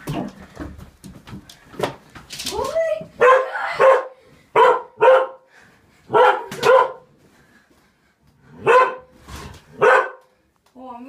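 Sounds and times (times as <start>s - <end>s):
dog barking: 3.2s - 5.5s, 6.1s - 7.1s, 8.6s - 9.1s, 9.8s - 10.3s.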